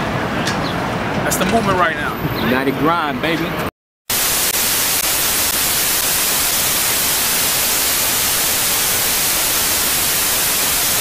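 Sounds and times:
television static hiss: 4.1 - 11.0.

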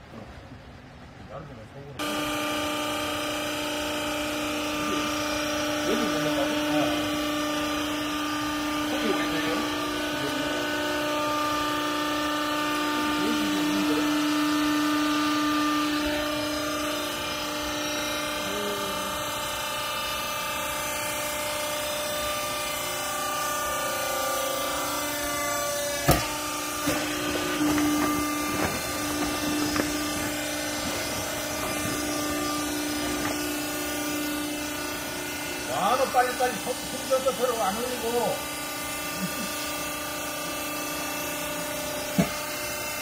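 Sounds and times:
hydraulic unit humming: 0.0 - 43.0
sharp knocks: 25.9 - 33.5.

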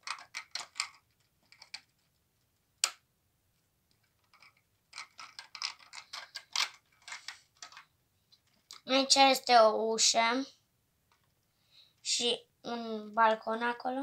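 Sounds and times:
plastic toy pieces clicking: 0.0 - 1.9, 4.2 - 7.9.

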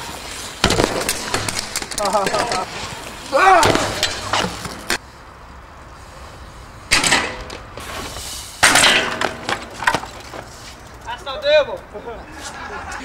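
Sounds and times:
bike hitting ground with metal ring: 0.6 - 5.0, 6.9 - 11.0.

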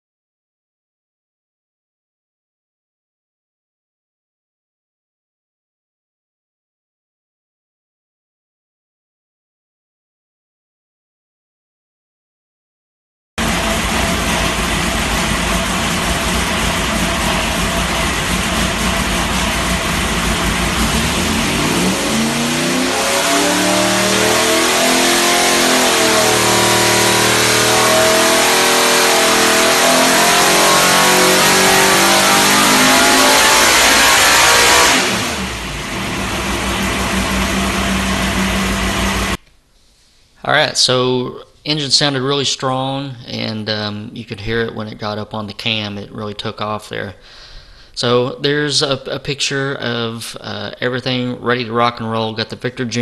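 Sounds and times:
racing engine revving on dyno: 13.4 - 39.4.

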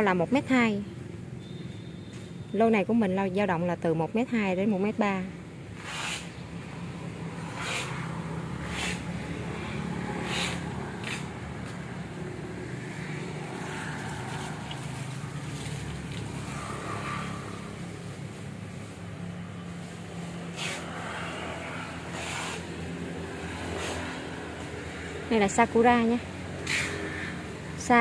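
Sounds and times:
short hissy swishes: 5.8 - 6.4, 10.2 - 11.3.

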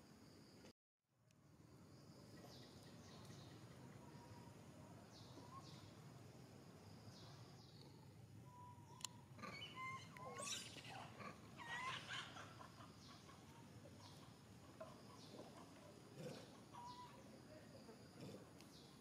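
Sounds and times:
high-pitched animal chirps: 9.4 - 12.3.

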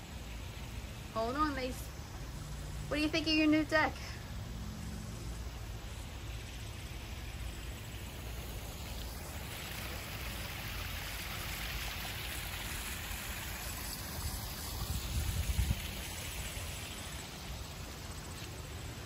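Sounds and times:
waterfall splashing over stones: 5.5 - 19.0.

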